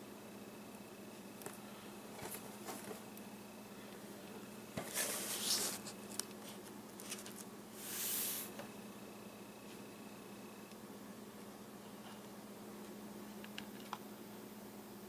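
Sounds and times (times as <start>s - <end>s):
faint steady hum: 0.0s - 15.0s
cardboard boxes rustling: 4.8s - 7.4s.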